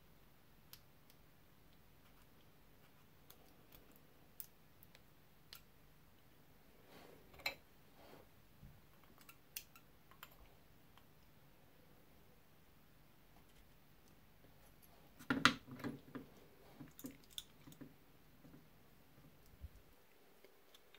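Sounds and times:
soft rustle: 6.6s - 8.8s.

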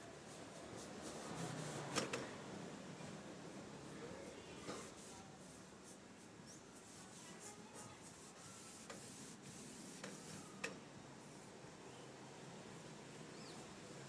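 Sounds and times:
brush and cloth scratching wood: 0.3s - 2.0s, 4.6s - 10.6s.

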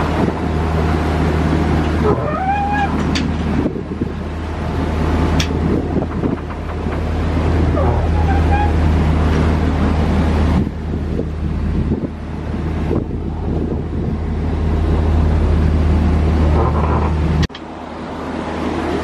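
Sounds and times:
boat engine humming: 0.0s - 19.0s
water rushing along hull: 0.0s - 19.0s
wind buffeting microphone: 2.9s - 17.5s.

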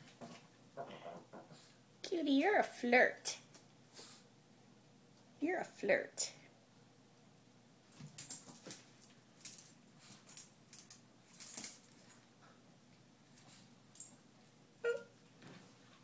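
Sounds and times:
dog claws clicking on hard floor: 8.0s - 12.3s.

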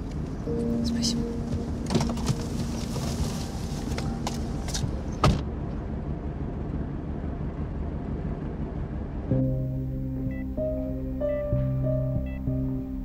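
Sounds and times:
car rumbling: 0.0s - 13.0s
music: 0.4s - 5.2s, 9.3s - 13.0s
sharp thump: 4.7s - 5.5s.

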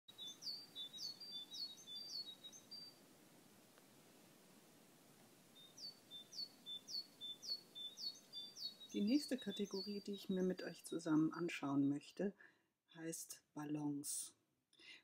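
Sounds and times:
small bird chirping: 0.1s - 3.0s, 5.4s - 12.2s.

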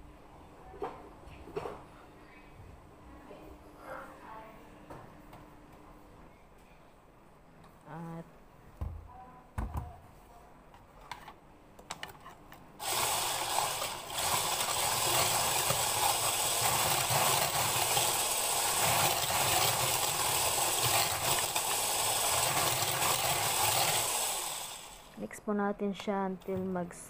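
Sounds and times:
electric mixer beating: 12.8s - 25.2s.

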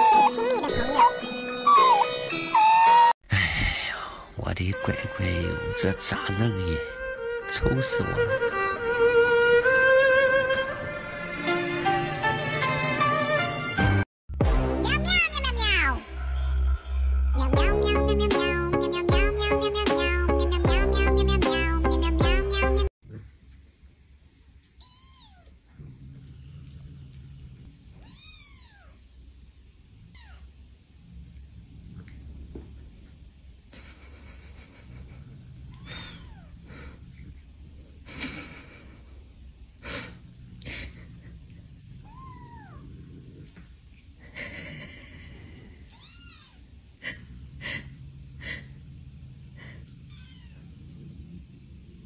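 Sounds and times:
kitten mewing: 0.0s - 3.1s, 35.0s - 37.3s, 42.0s - 43.6s, 49.6s - 50.6s.

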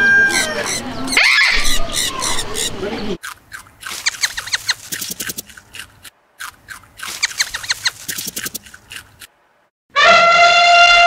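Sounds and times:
small bird chirping: 1.6s - 6.1s, 6.7s - 9.2s.

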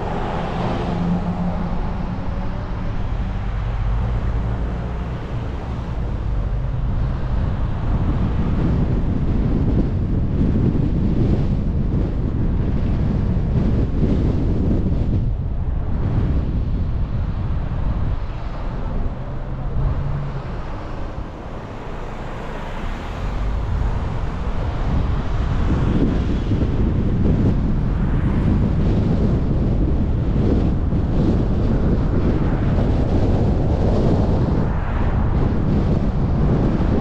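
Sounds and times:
car tyre and road noise: 0.0s - 37.0s
wind on microphone: 0.0s - 37.0s.

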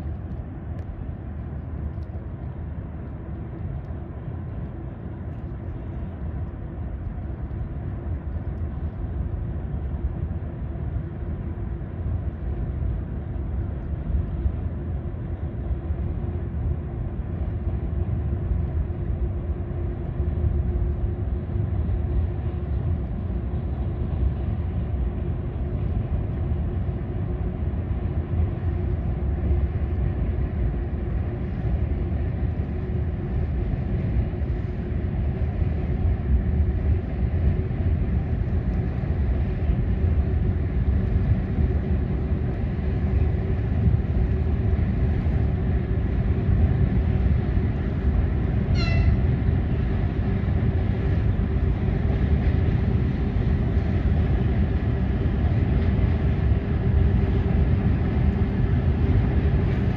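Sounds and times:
constant drone: 0.0s - 59.9s
train rumbling across bridge: 47.2s - 57.5s
short high squeal: 48.7s - 49.3s.

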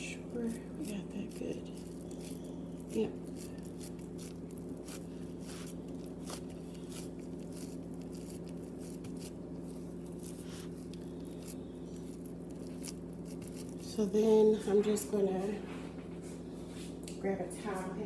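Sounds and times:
steady low hum: 0.0s - 18.0s
soft squishes of meat: 0.3s - 14.3s.

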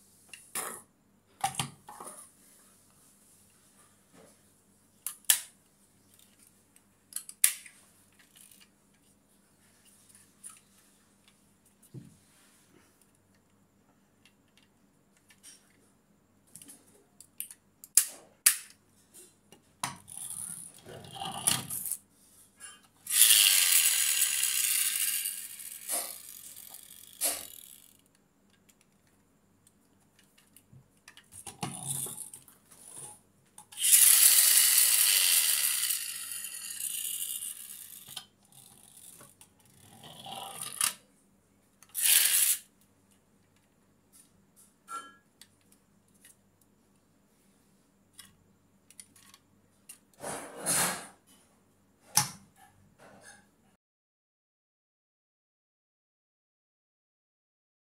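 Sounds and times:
toy car motor whirring: 20.0s - 22.0s, 23.0s - 28.1s, 31.7s - 33.0s, 33.7s - 41.0s, 41.8s - 42.7s
toy car ratchet rasping: 20.0s - 22.0s, 23.1s - 28.1s, 33.8s - 41.0s, 41.9s - 42.7s.

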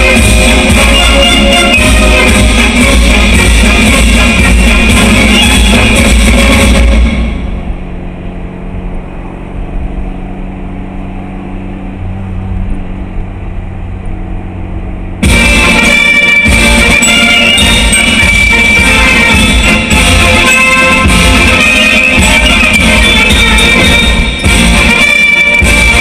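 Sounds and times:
music: 0.0s - 7.7s, 15.2s - 26.0s
car engine and road drone: 0.0s - 26.0s.

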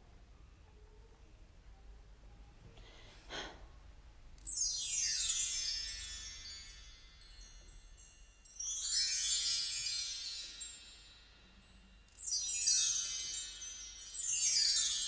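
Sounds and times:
bar chimes ringing: 4.4s - 15.0s.

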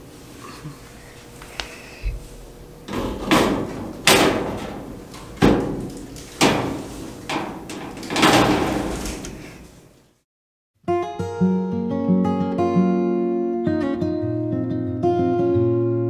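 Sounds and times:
mesh screen rattling: 2.9s - 9.7s.

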